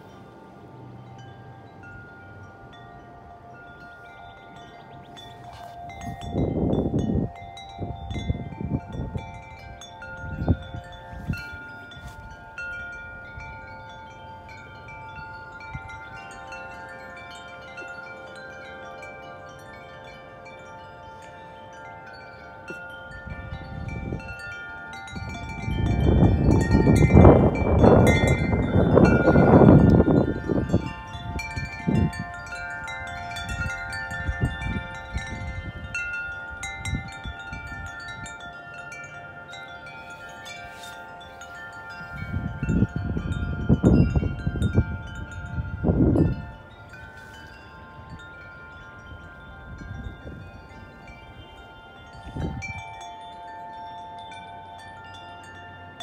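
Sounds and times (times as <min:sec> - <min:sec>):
metal wind chimes ringing: 0:00.0 - 0:56.0
wind gust on microphone: 0:05.3 - 0:16.5, 0:23.0 - 0:38.4, 0:40.5 - 0:53.0.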